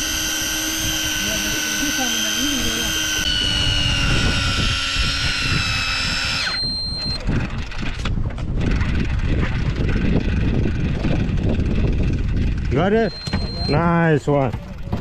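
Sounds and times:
electric fishing reel motor whining: 0.0s - 14.0s
low rumbling: 0.0s - 15.0s.

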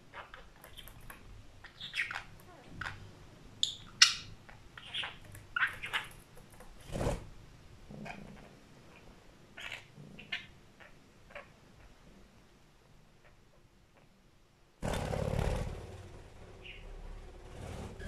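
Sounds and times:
budgerigar chirping: 1.6s - 3.0s, 3.6s - 6.1s, 16.6s - 16.9s
wings fluttering: 14.8s - 18.0s.

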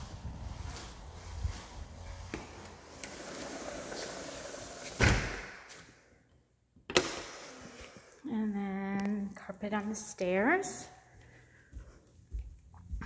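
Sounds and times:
sliding glass door banging shut: 2.8s - 5.7s.

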